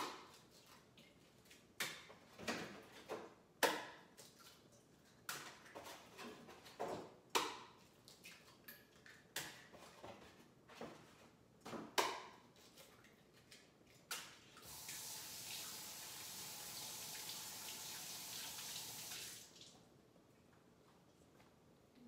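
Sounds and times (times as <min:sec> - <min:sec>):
kitchen faucet running: 0:14.6 - 0:19.6.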